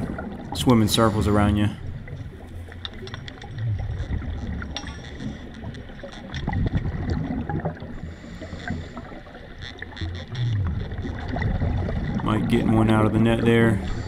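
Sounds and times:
underwater rumble: 0.0s - 14.0s
sharp clicks and crackles: 1.9s - 12.8s.

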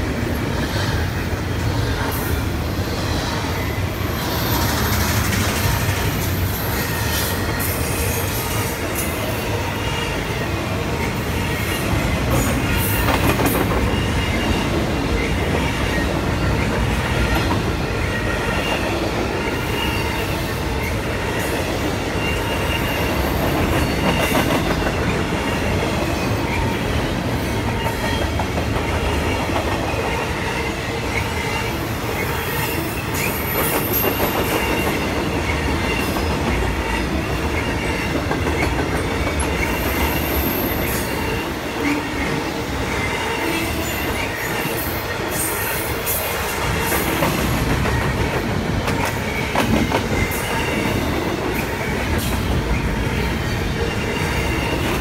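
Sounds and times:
steel wheels rumbling on rail: 0.0s - 55.0s
high wheel squeal: 2.8s - 25.1s.

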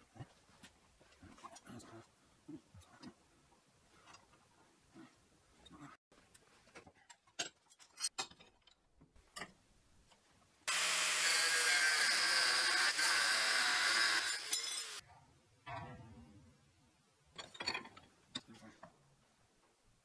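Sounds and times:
angle grinder cutting steel: 10.7s - 15.0s.

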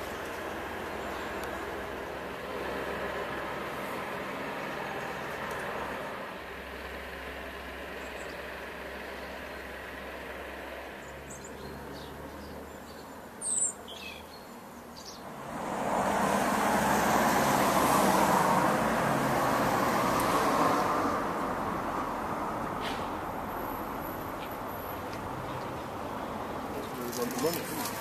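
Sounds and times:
low steady traffic hum: 0.0s - 28.0s
rush of traffic: 0.0s - 28.0s.

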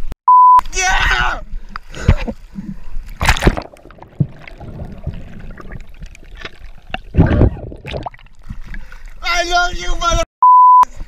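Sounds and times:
water splashing and gurgling: 2.0s - 9.3s.

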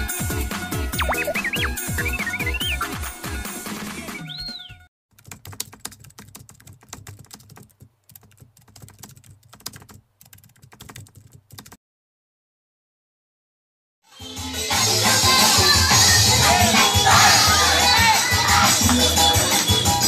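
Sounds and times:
dance music: 0.7s - 4.3s, 14.8s - 20.0s.

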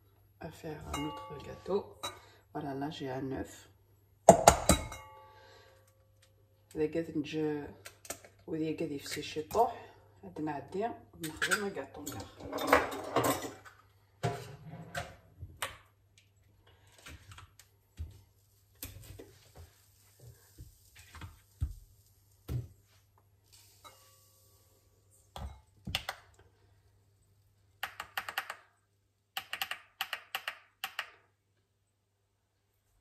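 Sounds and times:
kitchen items knocking on countertop: 4.3s - 5.0s.

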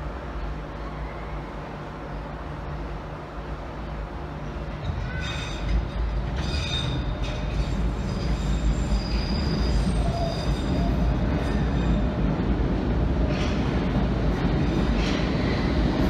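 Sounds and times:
train rumble: 0.0s - 16.0s
high wheel squeals: 6.4s - 12.0s.

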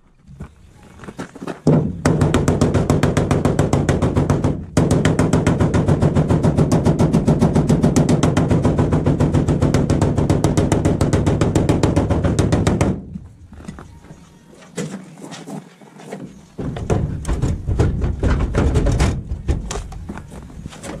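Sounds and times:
hammer striking sheet metal: 1.7s - 13.0s.

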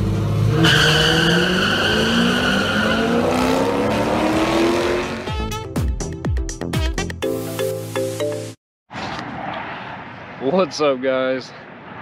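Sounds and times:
high tire squeal: 0.5s - 4.2s.

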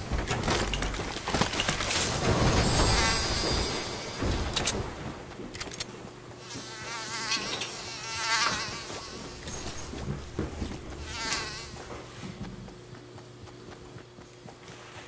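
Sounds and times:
housefly buzzing: 2.0s - 4.6s, 6.4s - 12.3s.

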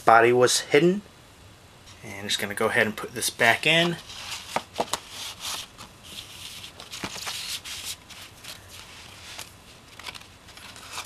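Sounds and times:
disc rubbing against cardboard: 3.8s - 11.0s.

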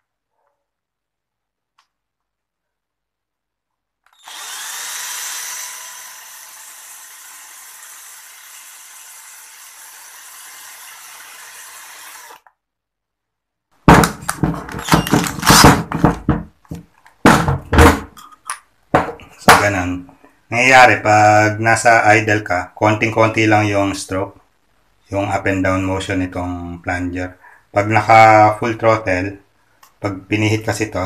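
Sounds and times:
cordless drill spinning: 4.0s - 12.6s, 14.3s - 15.7s
sharp knocks and clicks: 13.9s - 19.6s.

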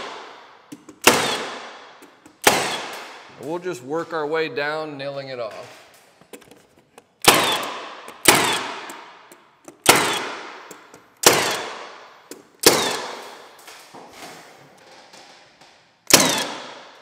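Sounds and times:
nail gun firing: 0.0s - 3.3s, 7.2s - 9.2s, 9.8s - 13.6s, 16.1s - 17.0s.

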